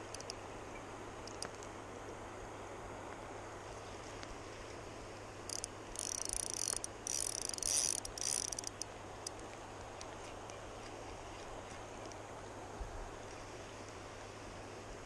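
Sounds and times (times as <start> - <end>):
fishing reel drag buzzing: 0.0 - 0.4, 5.5 - 9.4
river water noise: 0.0 - 15.0.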